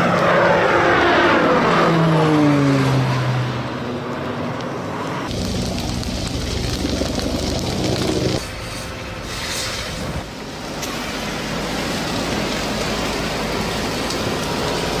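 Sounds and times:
fire hose spraying water: 0:05.3 - 0:15.0.

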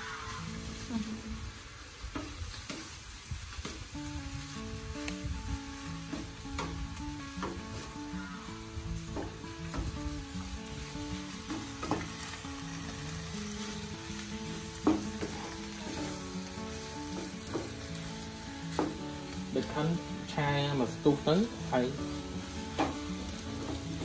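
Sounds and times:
food sizzling in a frying pan: 0:00.0 - 0:24.0
soft background music: 0:00.0 - 0:24.0
wooden spatula scraping and knocking pan: 0:05.7 - 0:08.1, 0:09.0 - 0:10.2, 0:11.1 - 0:18.1, 0:18.7 - 0:20.0, 0:21.8 - 0:24.0.

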